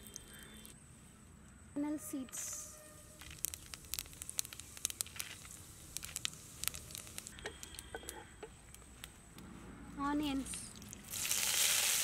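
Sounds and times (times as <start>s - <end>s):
spices crackling in hot oil: 3.0s - 8.2s, 10.5s - 12.0s.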